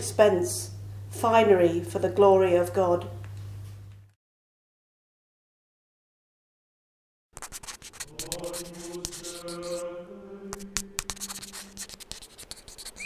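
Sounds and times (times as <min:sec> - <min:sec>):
voices singing plainchant: 0:08.0 - 0:11.8.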